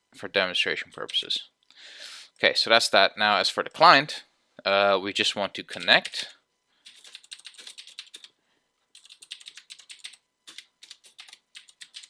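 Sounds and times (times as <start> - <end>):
typing on computer keyboard: 5.8 - 12.0.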